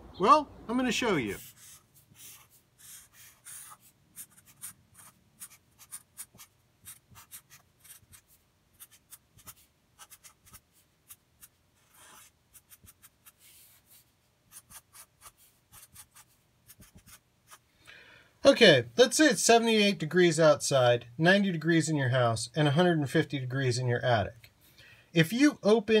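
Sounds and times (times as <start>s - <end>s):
marker drawing on paper: 1.3s - 17.6s.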